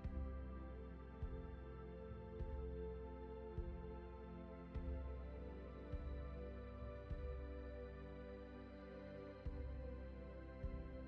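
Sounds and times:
soft low beat: 0.0 - 0.6, 1.2 - 1.7, 2.4 - 3.0, 3.6 - 4.1, 4.7 - 5.3, 5.9 - 7.7, 9.4 - 10.0, 10.6 - 11.0
calm ambient music: 0.0 - 11.0.

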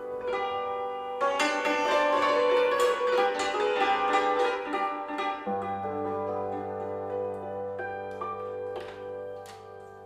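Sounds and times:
cimbalom played with mallets: 0.0 - 10.0.

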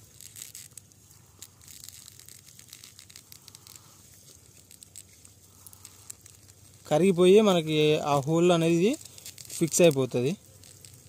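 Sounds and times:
foam crackling and scrunching: 0.0 - 11.0.

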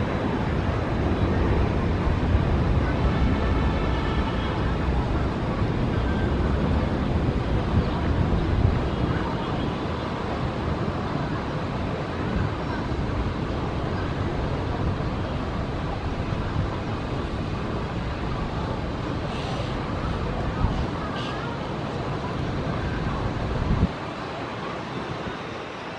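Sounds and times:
distant jet engines: 0.0 - 25.9
wind on microphone: 0.0 - 25.9.

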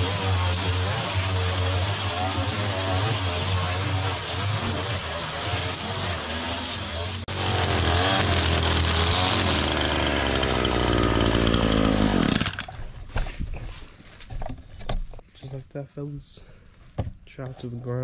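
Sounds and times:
string trimmer engine running: 0.0 - 12.9.

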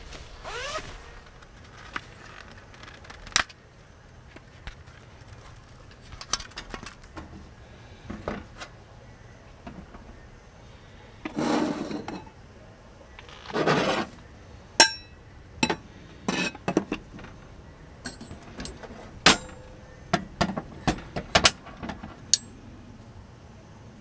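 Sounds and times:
metal and glass clinks: 14.8 - 15.8, 18.0 - 19.8
metal parts scraping: 18.0 - 19.8.

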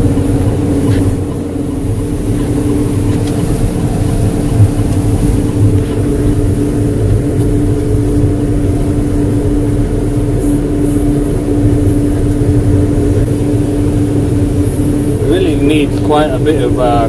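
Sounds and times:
street sweeper engine droning: 0.0 - 17.0.

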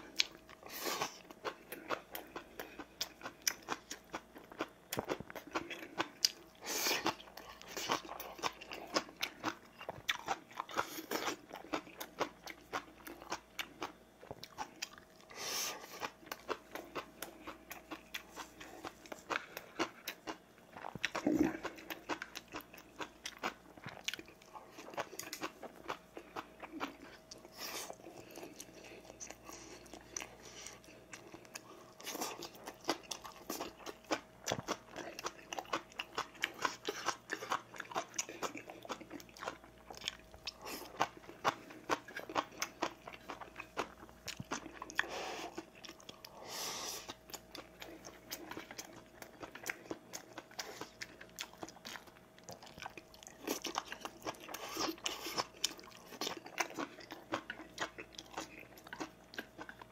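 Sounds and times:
man chewing: 0.0 - 59.9.

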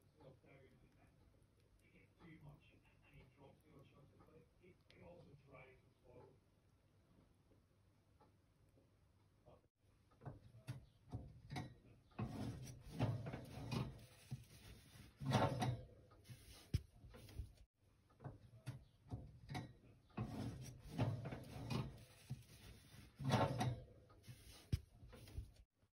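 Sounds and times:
metal pan scraping on oven rack: 12.2 - 17.4, 20.2 - 25.4
oven rack rattling: 19.3 - 24.6.

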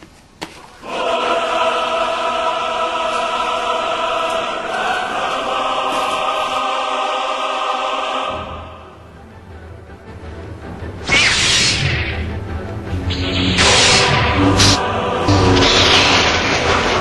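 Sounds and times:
choir singing sustained chord: 0.8 - 10.9, 12.3 - 17.0
low hum: 10.4 - 17.0.

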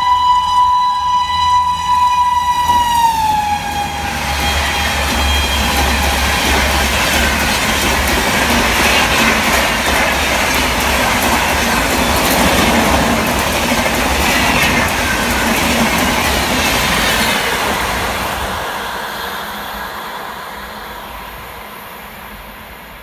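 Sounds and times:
train wheels rushing on rails: 0.0 - 23.0
clickety-clack over rail joints: 2.6 - 18.4.

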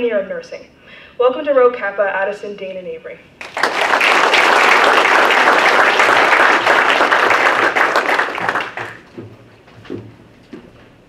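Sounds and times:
audience applauding: 3.4 - 9.1.

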